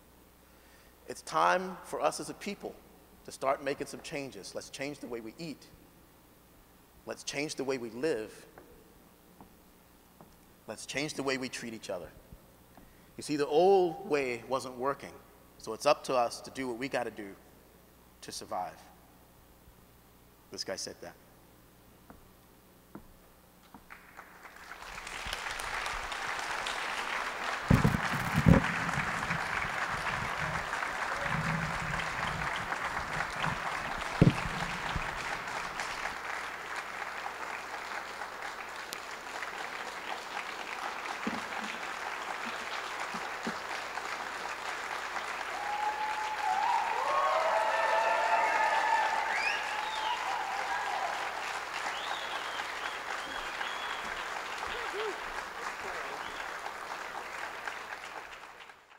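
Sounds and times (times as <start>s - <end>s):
audience applauding: 23.9s - 58.9s
audience cheering: 24.6s - 38.4s, 44.8s - 58.3s
loud thumps: 27.6s - 35.4s.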